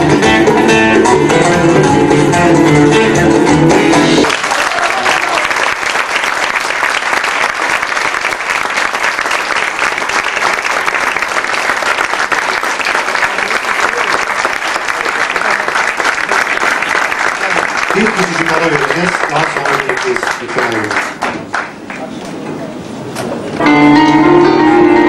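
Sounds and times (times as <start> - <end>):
audience applauding: 4.0 - 22.1.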